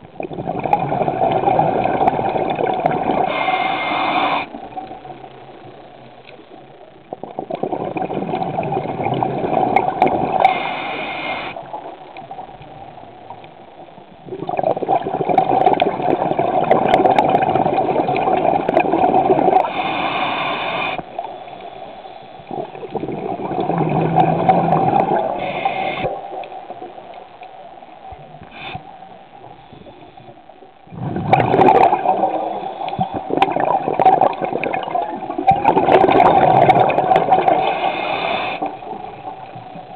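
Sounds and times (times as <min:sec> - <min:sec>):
gurgling exhaled bubbles: 0:00.0 - 0:04.9, 0:07.1 - 0:12.5, 0:14.2 - 0:21.3, 0:22.5 - 0:26.4, 0:30.9 - 0:39.9
regulator inhale hiss: 0:03.2 - 0:04.6, 0:10.4 - 0:11.7, 0:19.6 - 0:22.6, 0:25.2 - 0:26.4, 0:28.4 - 0:30.3, 0:32.3 - 0:33.4, 0:37.5 - 0:39.0.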